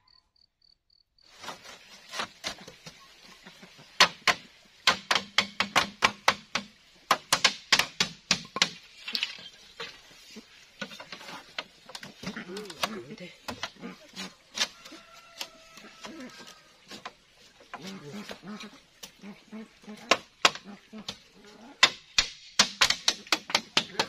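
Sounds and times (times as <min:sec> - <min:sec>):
faint high chirps: 0:00.0 - 0:01.0
bamboo slats clacking: 0:01.4 - 0:19.2, 0:19.8 - 0:24.0.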